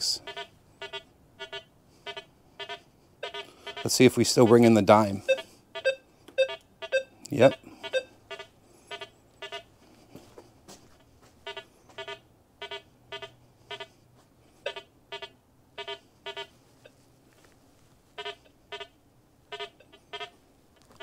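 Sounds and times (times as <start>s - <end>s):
metal detector beeps: 0.2s - 9.6s, 14.6s - 16.5s, 19.5s - 20.3s.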